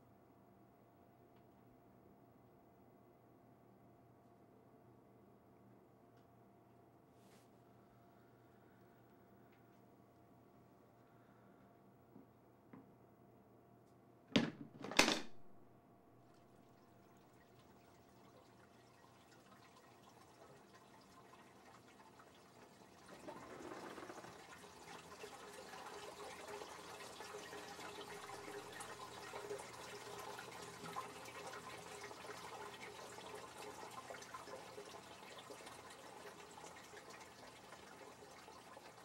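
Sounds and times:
faint steady hum: 0:00.0 - 0:39.0
running spattering water: 0:17.2 - 0:39.0.

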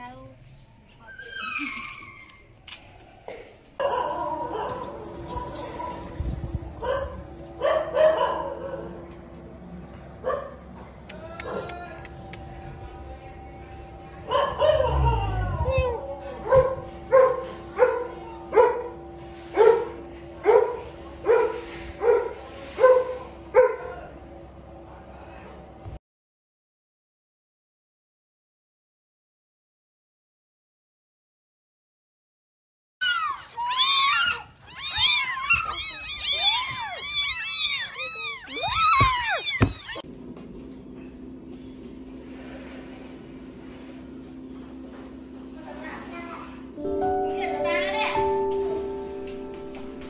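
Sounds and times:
kittens mewing: 0:33.0 - 0:40.0.

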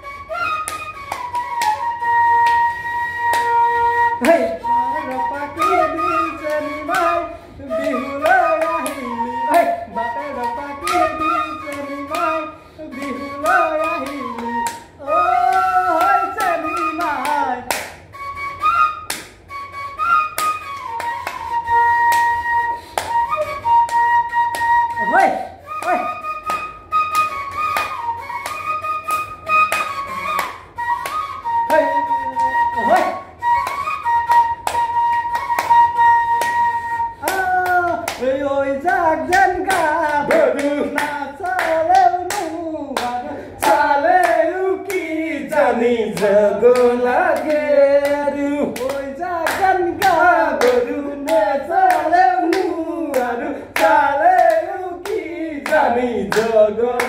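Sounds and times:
bamboo flute melody: 0:00.0 - 0:45.7
hand claps: 0:00.5 - 0:03.6, 0:04.2 - 0:07.2, 0:07.8 - 0:09.7, 0:10.3 - 0:18.1, 0:18.8 - 0:57.0
person singing: 0:04.2 - 0:17.7, 0:37.2 - 0:57.0.

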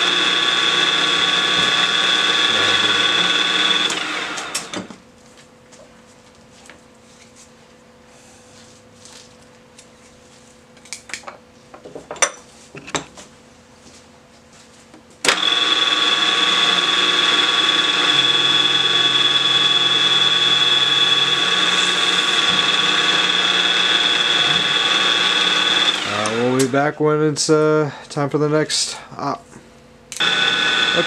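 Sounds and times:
mill spindle whining: 0:00.0 - 0:05.0, 0:15.3 - 0:27.0, 0:30.1 - 0:31.0.

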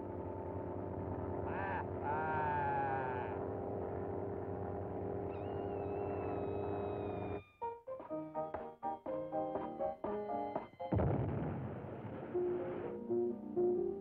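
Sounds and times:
cartoon plane engine droning: 0:00.0 - 0:07.5
wavering cartoon voice call: 0:01.5 - 0:03.3
thin high falling whistle: 0:05.3 - 0:07.6.

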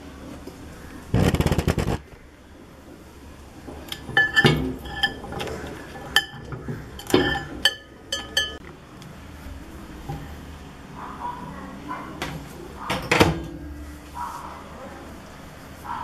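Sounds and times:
loud rapid rattle: 0:01.1 - 0:02.0
metal utensil clinking on glass: 0:03.9 - 0:08.6.

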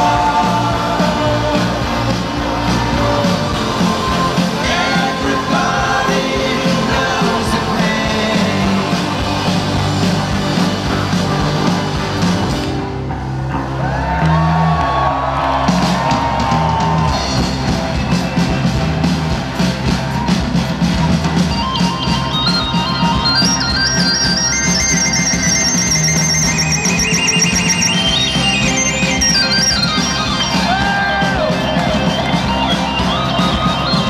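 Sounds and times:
drums: 0:00.0 - 0:34.0
electric guitar: 0:00.0 - 0:34.0
live rock band: 0:00.0 - 0:34.0.

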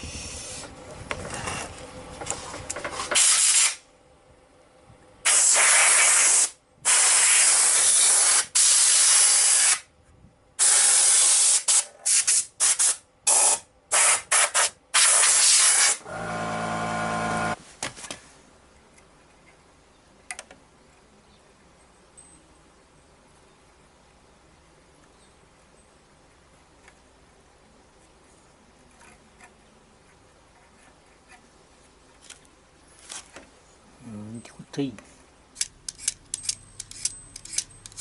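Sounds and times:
compressed air hissing: 0:00.0 - 0:00.7, 0:03.2 - 0:03.8, 0:05.3 - 0:09.8, 0:10.6 - 0:16.0
short air bursts: 0:00.0 - 0:00.7, 0:03.1 - 0:03.8, 0:05.2 - 0:09.9, 0:10.6 - 0:17.6.

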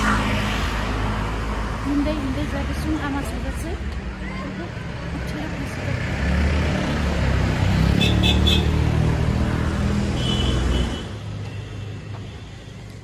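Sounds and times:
vehicle passing by: 0:04.9 - 0:10.9.

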